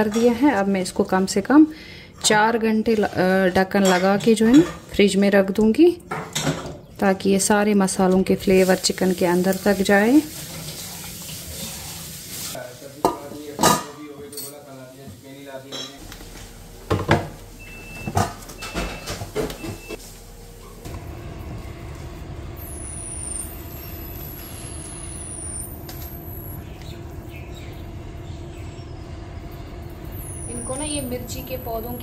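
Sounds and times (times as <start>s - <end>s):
dishes clattering: 6.1s - 6.9s, 13.0s - 14.6s, 15.7s - 16.0s
distant traffic hum: 16.0s - 32.0s.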